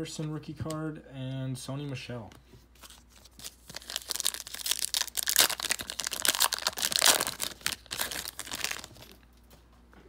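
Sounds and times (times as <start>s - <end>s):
plastic wrapper crinkling: 2.8s - 9.2s.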